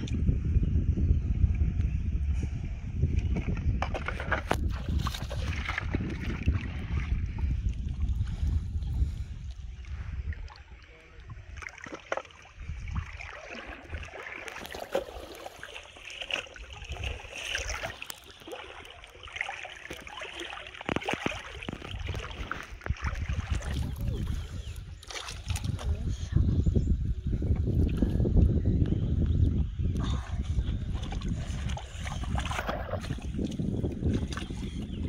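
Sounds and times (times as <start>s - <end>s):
wind buffeting microphone: 0.0s - 35.0s
muddy water sloshing and splashing: 2.9s - 35.0s.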